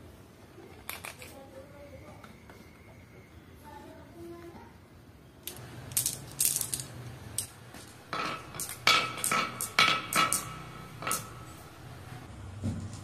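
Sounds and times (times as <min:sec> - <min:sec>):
glass marbles clacking on wood: 0:05.5 - 0:11.8.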